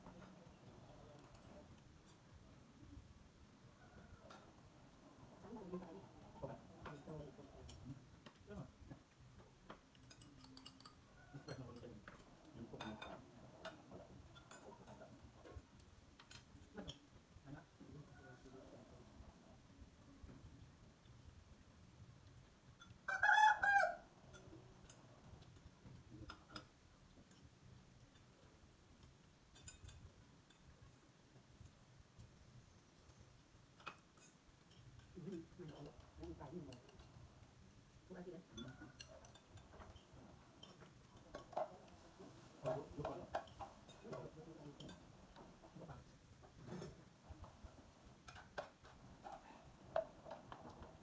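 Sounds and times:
chopsticks and spoons on bowls: 0.0s - 2.8s, 3.7s - 21.2s, 22.2s - 51.0s
rooster call: 23.1s - 24.0s.

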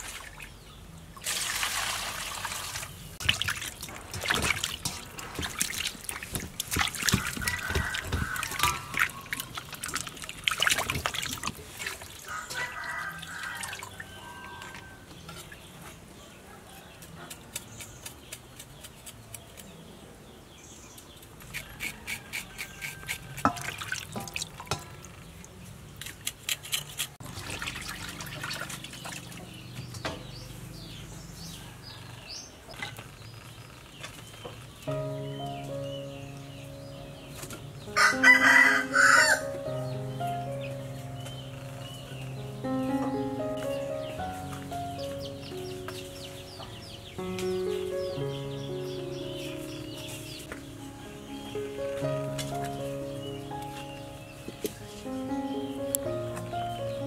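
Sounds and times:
water splashing in metal bowl: 1.2s - 14.7s, 23.4s - 25.1s, 27.2s - 29.6s
water dripping: 1.2s - 15.6s, 23.4s - 26.1s, 27.2s - 30.1s.

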